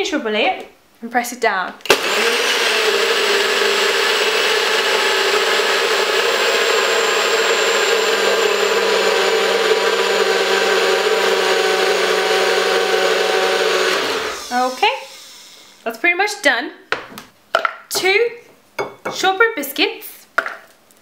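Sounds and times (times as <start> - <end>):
blender motor running: 1.9 - 15.7.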